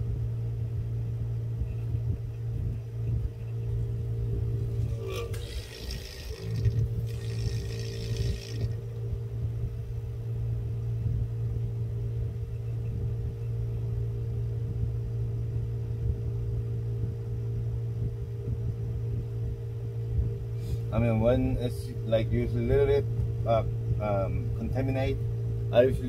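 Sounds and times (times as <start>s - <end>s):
suction machine motor humming: 4.6s - 9.0s
hiss of air and water: 5.0s - 8.8s.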